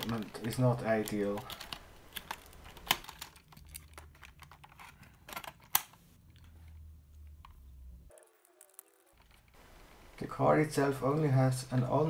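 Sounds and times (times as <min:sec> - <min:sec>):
hard plastic clicks and rattles: 0:00.0 - 0:05.9.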